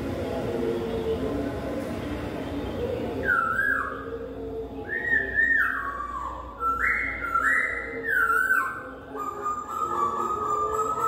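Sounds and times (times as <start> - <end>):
bird singing whistled phrases: 3.2 - 4.1, 4.8 - 11.0.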